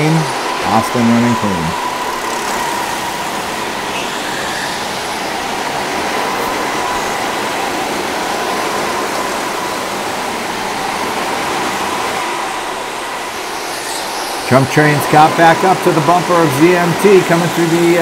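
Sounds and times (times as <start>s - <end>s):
faint steady high tone: 0.0s - 11.2s
go-karts droning in a hall: 0.0s - 18.0s.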